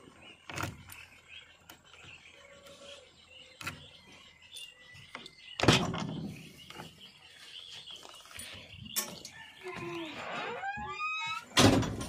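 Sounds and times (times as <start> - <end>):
door clunk: 10.7 - 12.0.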